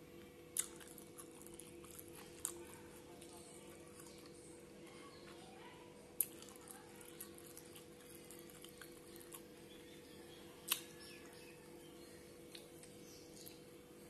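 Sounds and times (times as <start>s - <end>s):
low steady hum: 0.0s - 14.0s
lip smacks and chewing: 0.6s - 4.4s, 6.2s - 9.6s, 10.6s - 11.4s.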